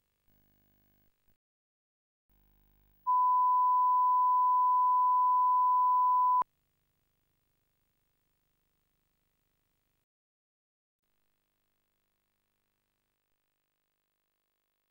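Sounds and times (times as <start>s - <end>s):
steady line-up test tone: 3.1s - 6.4s.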